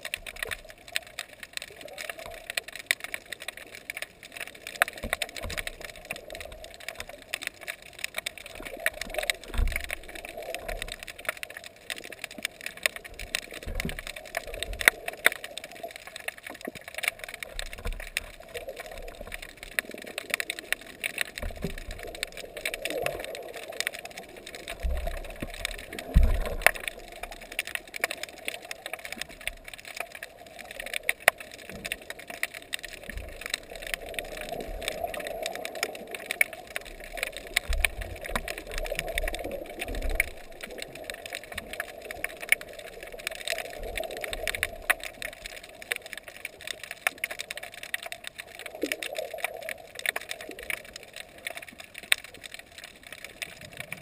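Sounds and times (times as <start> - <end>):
underwater crackle of clicks: 0.0 - 54.0
water thumping against camera: 24.8 - 26.9.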